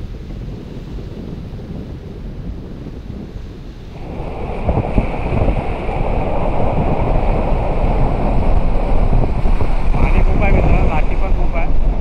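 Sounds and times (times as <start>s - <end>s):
wind buffeting microphone: 0.0s - 12.0s
rushing water: 3.9s - 12.0s
steady high whine: 3.9s - 12.0s.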